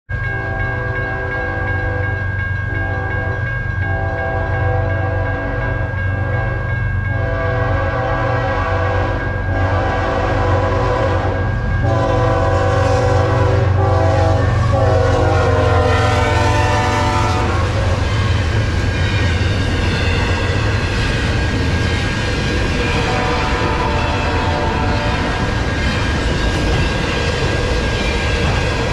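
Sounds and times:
locomotive air horn blasts: 7.2 - 18.2, 22.9 - 25.5.

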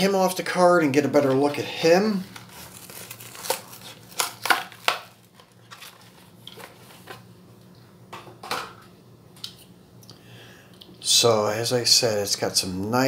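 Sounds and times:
packaging rustling: 1.3 - 7.3
plastic blister pack crackling: 2.0 - 7.2.

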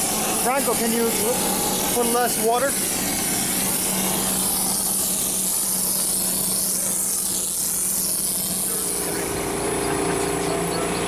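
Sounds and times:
machine humming: 0.0 - 11.0
spray gun hissing: 0.0 - 11.0.

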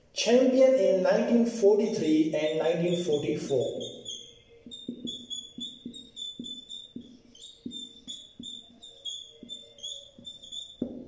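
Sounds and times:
marker squeaking on whiteboard: 1.8 - 11.0
marker light taps: 3.8 - 11.0.

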